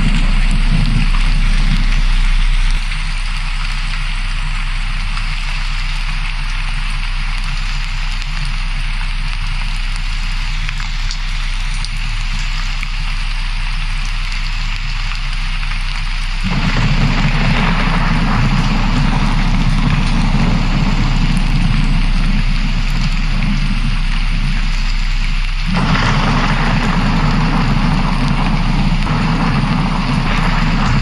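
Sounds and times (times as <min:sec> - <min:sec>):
thunder-like rumbling: 0:00.0 - 0:04.4, 0:16.4 - 0:31.0
steady rain: 0:00.0 - 0:31.0.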